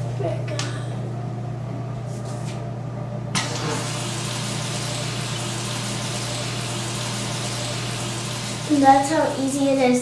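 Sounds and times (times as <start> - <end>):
water rushing into toilet tank: 3.4 - 8.8.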